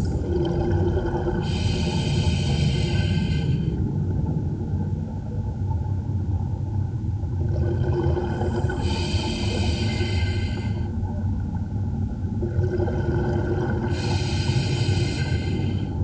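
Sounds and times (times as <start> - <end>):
diver breathing through regulator: 1.4 - 3.8, 8.7 - 10.9, 13.9 - 15.9
low underwater rumble: 2.6 - 9.8.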